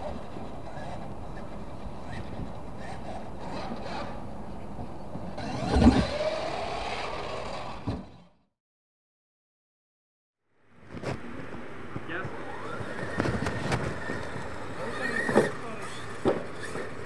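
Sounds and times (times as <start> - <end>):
toy truck motor whining: 2.8 - 4.2, 5.4 - 8.4, 12.3 - 17.0
tyres scrabbling over dirt: 12.0 - 17.0
thump of truck hitting ramp: 16.2 - 16.9.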